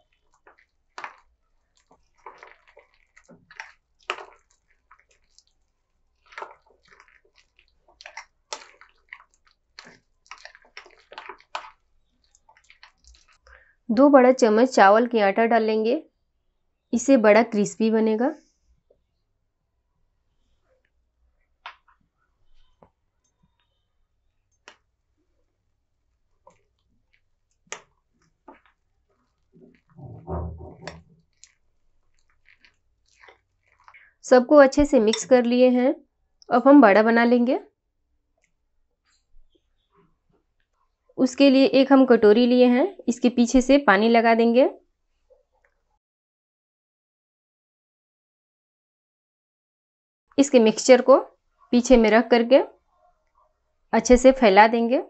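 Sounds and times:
wet batter squelches: 0.0 - 14.8, 16.1 - 46.0.

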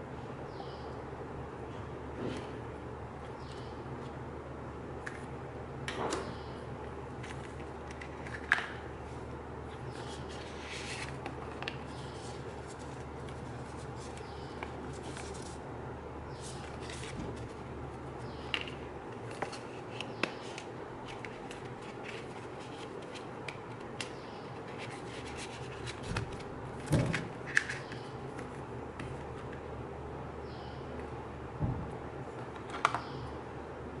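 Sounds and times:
steady low hum: 0.0 - 34.0
paper rustling: 9.8 - 15.6, 16.4 - 17.6.

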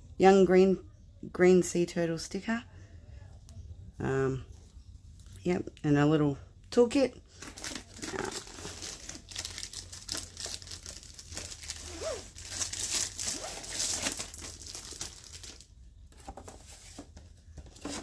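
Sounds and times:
packaging crinkling: 7.4 - 15.7.

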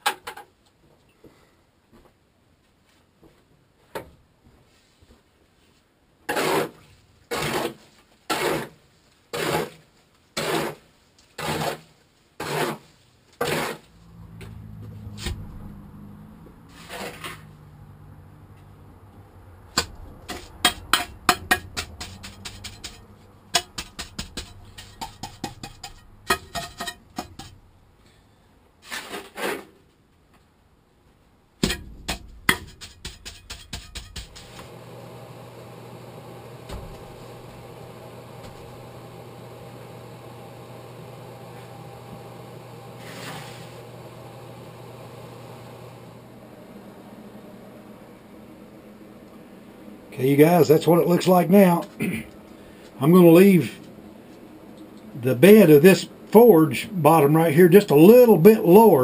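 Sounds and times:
hoe scraping mortar in wheelbarrow: 6.2 - 13.9, 16.7 - 17.6, 20.2 - 27.6, 28.8 - 29.8, 43.0 - 43.8
trowel scraping and tapping stones: 19.8 - 27.6, 32.5 - 34.5.

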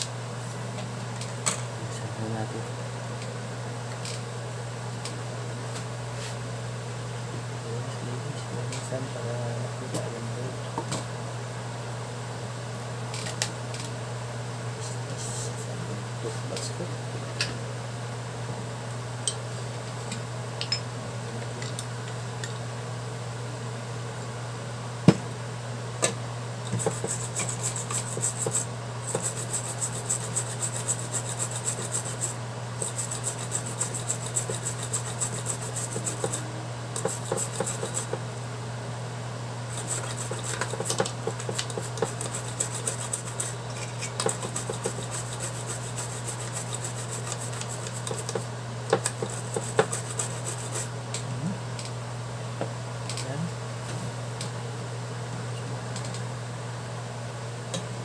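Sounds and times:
steady low hum: 0.0 - 58.0
small brush scrubbing circuit board: 26.8 - 38.2, 39.7 - 50.9.

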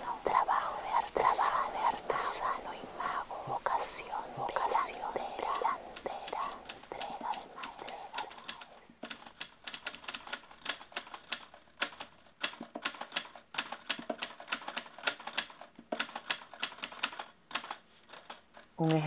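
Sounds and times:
rapid sharp clicking: 5.4 - 19.0.

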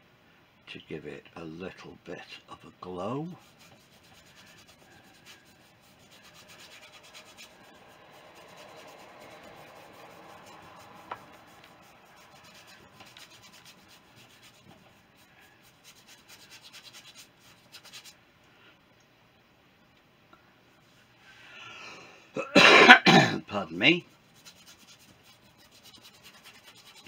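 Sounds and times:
paintbrush scrubbing on board: 2.9 - 18.2, 23.6 - 27.0.

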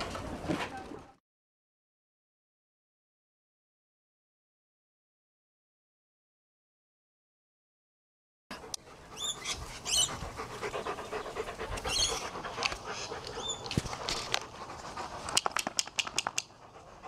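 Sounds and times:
dogs panting: 8.5 - 17.0
dog chirping calls: 9.1 - 10.2, 11.8 - 12.4, 13.3 - 13.7
sharp clicks: 15.2 - 16.6.

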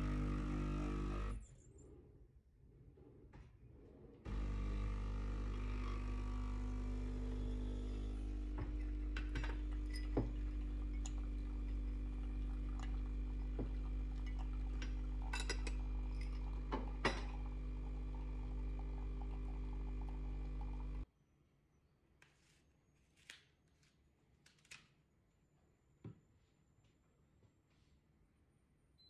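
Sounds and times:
coffee running into a mug: 0.0 - 1.4, 4.3 - 21.0
espresso machine pump humming: 0.0 - 1.4, 4.3 - 21.0
glass jar clinks: 9.2 - 11.2, 14.2 - 17.4.

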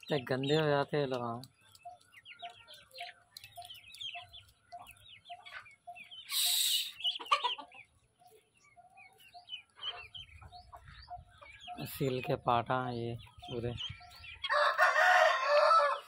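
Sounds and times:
chicks peeping: 0.0 - 16.0
low cluck: 1.1 - 8.0.

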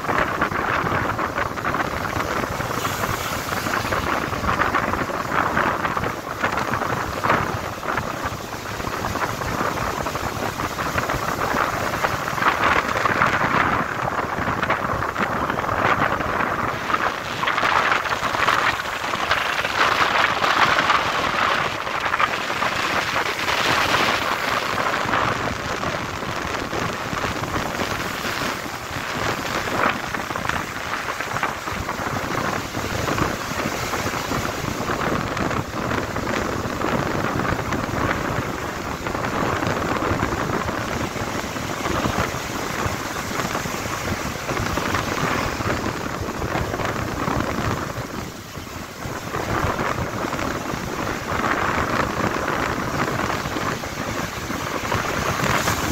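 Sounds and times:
ocean waves breaking: 0.0 - 55.9.

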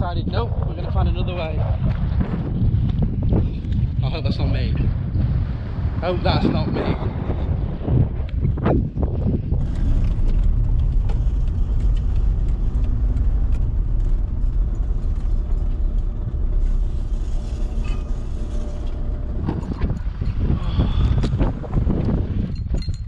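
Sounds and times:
diesel engine running: 9.4 - 22.5
knocks and rattles: 9.5 - 23.0.

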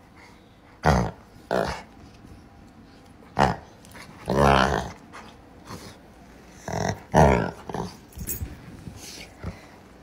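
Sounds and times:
dog growling playfully: 0.8 - 1.9, 3.3 - 5.9, 6.6 - 8.2.

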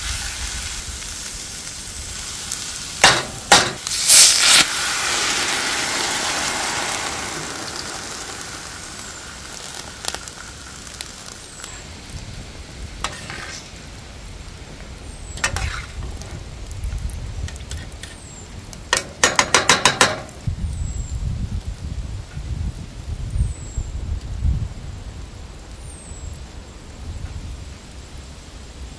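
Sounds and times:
onions sizzling in a pan: 0.0 - 28.9.

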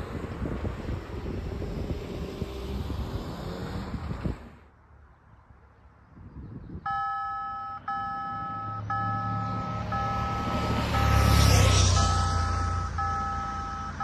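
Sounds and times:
road traffic: 0.0 - 14.0
wind: 0.0 - 14.0
level crossing warning bells: 6.9 - 14.0.

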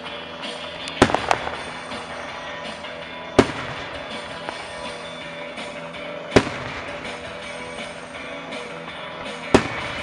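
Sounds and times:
music from a radio: 0.0 - 10.0
firework bang: 1.0 - 1.7, 3.4 - 4.7, 6.4 - 7.1.

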